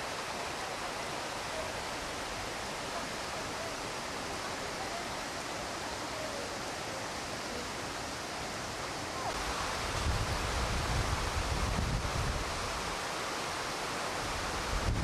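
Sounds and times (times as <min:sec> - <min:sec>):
running water rushing: 0:00.0 - 0:15.0
wind rumbling on microphone: 0:09.7 - 0:12.9, 0:14.3 - 0:15.0.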